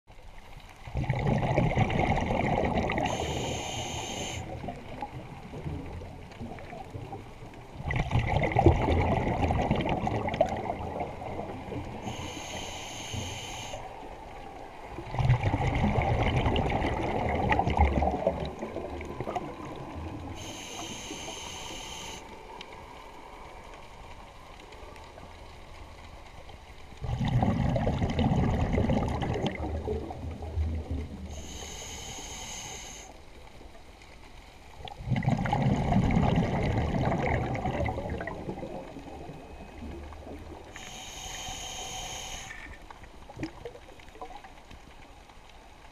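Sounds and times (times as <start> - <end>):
underwater bubbles gurgling: 0.1 - 45.9
regulator hiss: 3.0 - 4.5, 12.0 - 14.0, 20.4 - 22.3, 31.3 - 33.2, 40.8 - 42.8.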